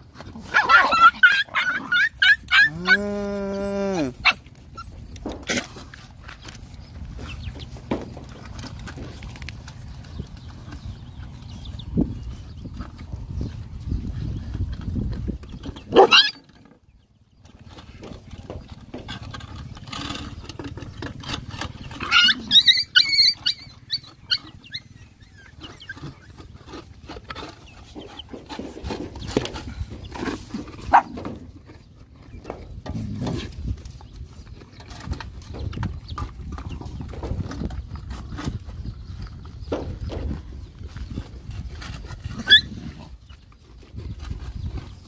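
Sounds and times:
dogs scuffling and eating: 0.0 - 45.0
puppies squealing and snarling: 0.4 - 5.7, 15.9 - 16.6, 19.2 - 31.2, 41.6 - 43.2
dog yelping: 0.5 - 4.9, 15.9 - 16.4, 22.0 - 26.3, 42.4 - 42.8
dogs growling: 0.9 - 4.4.

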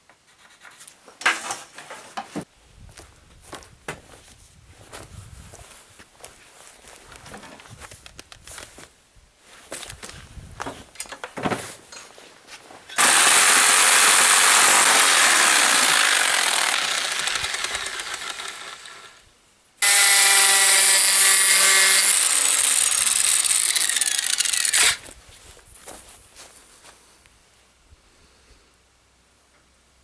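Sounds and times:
electric power saw cutting wood: 12.9 - 19.2, 19.8 - 25.0.

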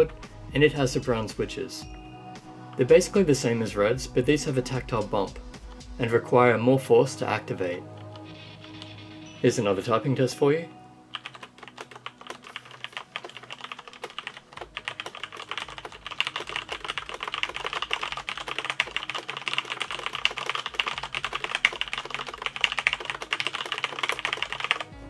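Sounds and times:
typing on mechanical keyboard: 11.1 - 25.0.

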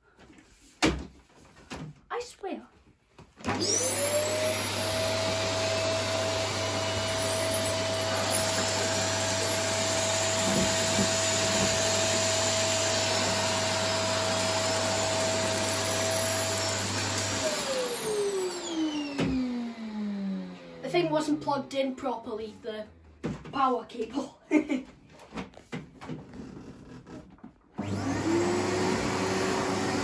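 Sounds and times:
vacuum cleaner motor whine: 3.4 - 20.8, 27.8 - 30.0.

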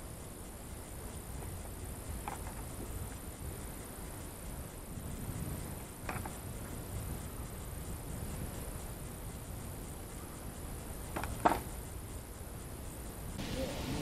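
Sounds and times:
faint high hiss: 0.0 - 14.0.

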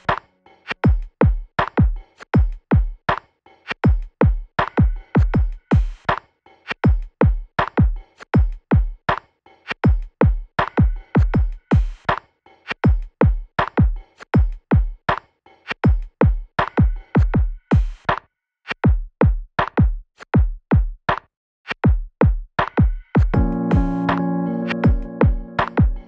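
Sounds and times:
drum machine kick drums: 0.8 - 3.0, 3.8 - 6.2, 6.8 - 9.0, 9.8 - 12.1, 12.8 - 15.0, 15.8 - 18.1, 18.8 - 21.0, 21.8 - 26.0.

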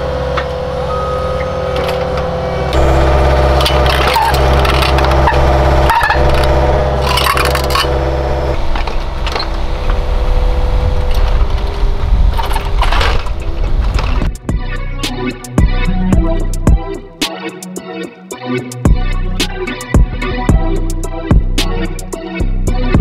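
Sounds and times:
mini excavator engine running: 0.0 - 17.2.

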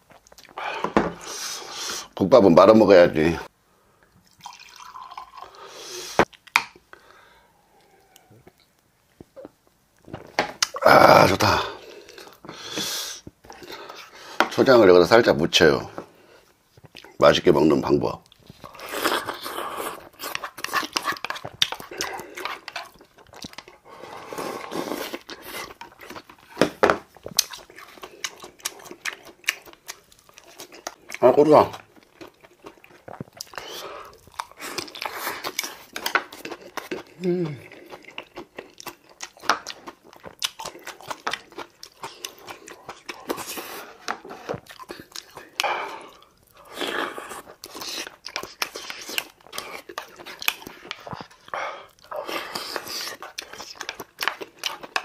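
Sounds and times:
chewing and crunching food: 0.0 - 1.2, 15.8 - 55.0.

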